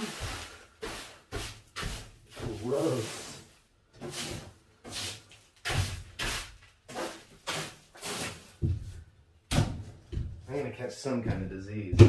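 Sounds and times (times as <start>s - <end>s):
broom knocking on floor: 0.0s - 2.7s, 5.6s - 10.4s
broom sweeping floor: 0.0s - 9.1s.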